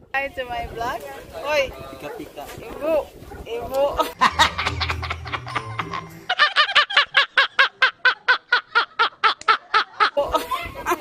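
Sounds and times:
man laughing loudly: 0:04.0 - 0:10.6
music with deep bass line: 0:04.1 - 0:06.4.

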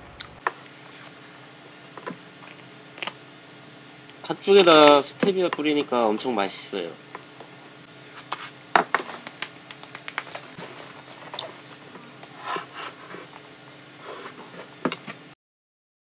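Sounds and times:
faint steady hum: 0:00.0 - 0:15.4
soft eating sounds: 0:09.3 - 0:14.8.

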